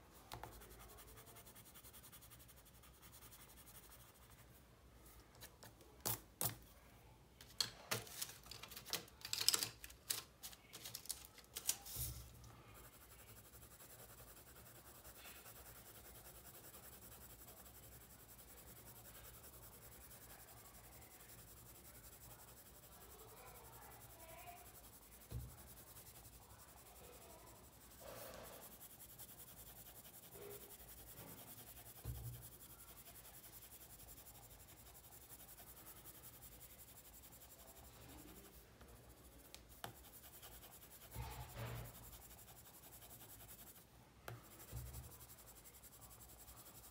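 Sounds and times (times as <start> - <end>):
pencil scratching on paper: 0.0 - 6.6, 10.8 - 46.9
coloured pencils clicking together: 7.4 - 11.9.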